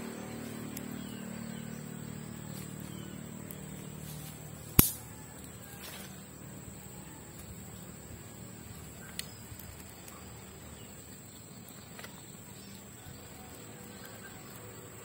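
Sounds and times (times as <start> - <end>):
sticks clicking in metal pan: 4.8 - 5.0.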